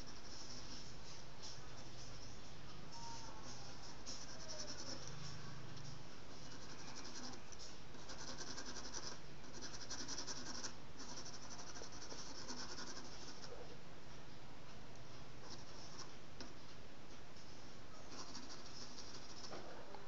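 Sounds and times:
pencil scratching on paper: 0.0s - 1.0s, 3.5s - 5.4s, 6.3s - 13.6s, 15.4s - 16.1s, 18.1s - 19.6s
steady low hum: 0.0s - 20.0s.

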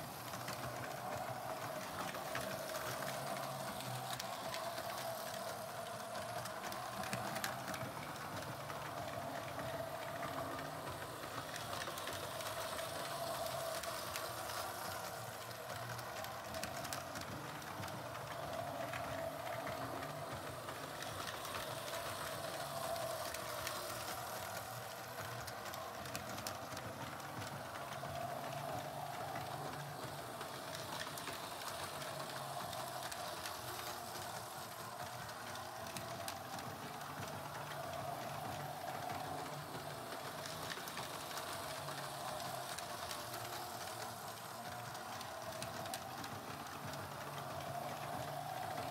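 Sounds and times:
model train motor hum: 0.0s - 48.9s
wheels clicking on rails: 0.0s - 48.9s.

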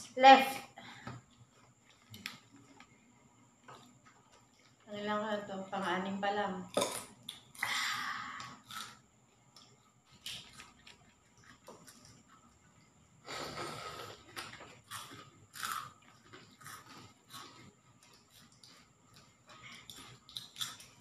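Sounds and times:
chewing: 1.2s - 4.9s, 9.6s - 21.0s.

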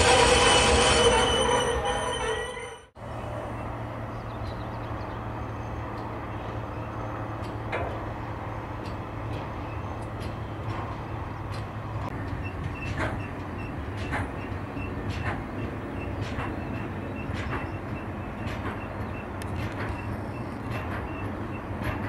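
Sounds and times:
train wheels rumbling on rails: 0.0s - 22.0s
sharp clicks and knocks: 7.4s - 8.1s, 8.8s - 22.0s.

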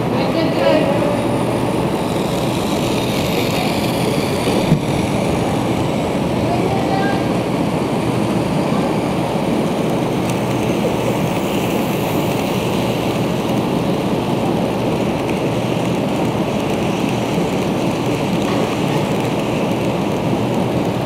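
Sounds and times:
model train wheels rattling: 0.4s - 7.4s, 9.8s - 21.0s.

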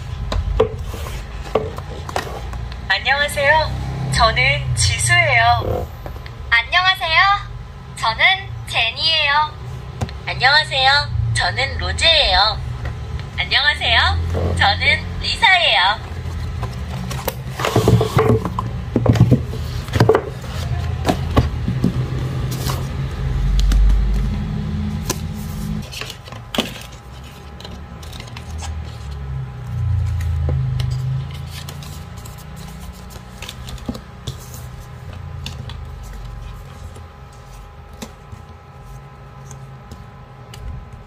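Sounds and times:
booklet pages flipping: 0.0s - 2.8s, 16.0s - 18.4s, 19.5s - 41.0s
low steady rumble: 0.0s - 41.0s.

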